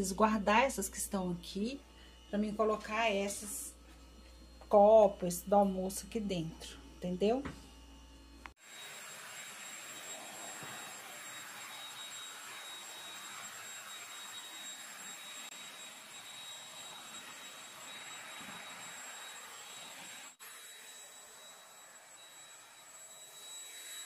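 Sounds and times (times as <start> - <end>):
stick vacuum cleaner running: 7.0 - 24.0.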